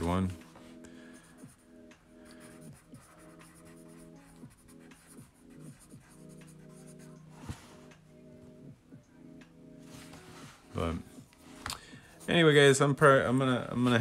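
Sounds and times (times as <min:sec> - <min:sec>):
soft background music: 0:00.0 - 0:14.0
pencil scratching on paper: 0:02.3 - 0:07.8.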